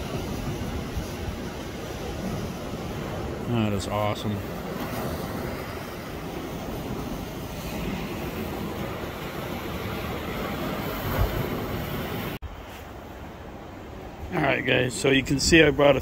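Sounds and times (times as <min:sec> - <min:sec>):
wind on microphone: 0:00.0 - 0:03.5, 0:04.4 - 0:12.4
choppy sea water: 0:00.0 - 0:16.0.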